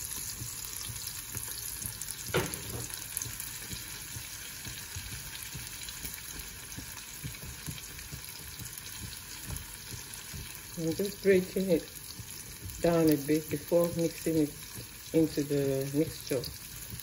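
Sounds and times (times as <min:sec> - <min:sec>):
vegetables sizzling in oil: 0:00.0 - 0:17.0
sharp knock: 0:02.3 - 0:02.9.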